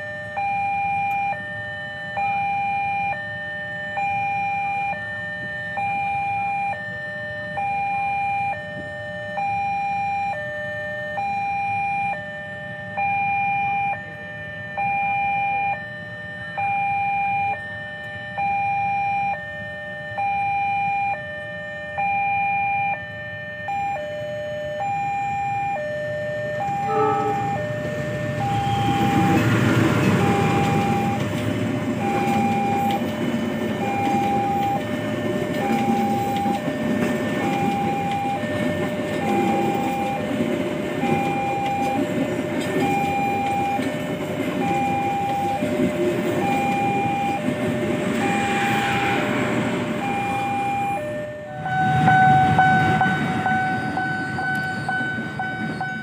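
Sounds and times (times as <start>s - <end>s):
level crossing alarm two tones: 0.0s - 56.0s
train rumbling past: 26.6s - 56.0s.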